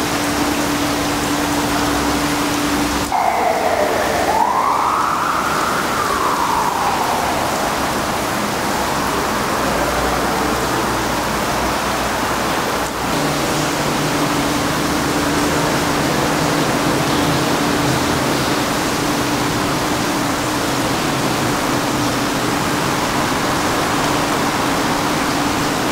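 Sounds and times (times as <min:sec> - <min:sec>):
whine rising and falling: 0:03.1 - 0:09.3
loud rushing noise: 0:03.1 - 0:10.2.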